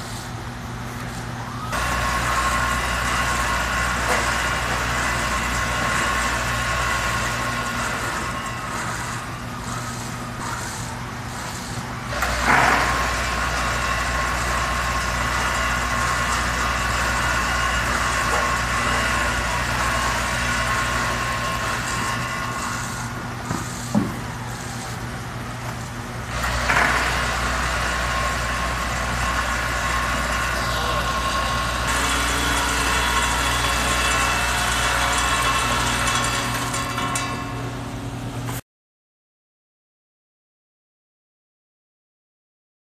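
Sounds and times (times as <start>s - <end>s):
vibratory feeder humming: 0.0s - 38.5s.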